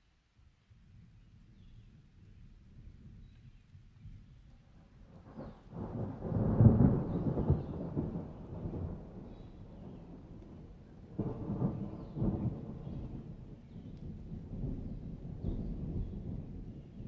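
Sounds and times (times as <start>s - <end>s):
thunder rumbling: 5.1s - 17.0s.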